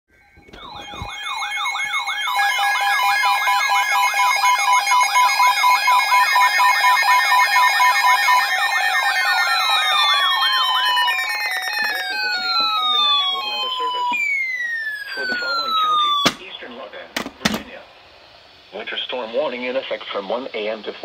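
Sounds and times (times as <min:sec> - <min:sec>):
steady beeps: 0:00.1 - 0:16.5
warbling alarm tones: 0:00.1 - 0:16.8
falling tone: 0:00.1 - 0:18.2.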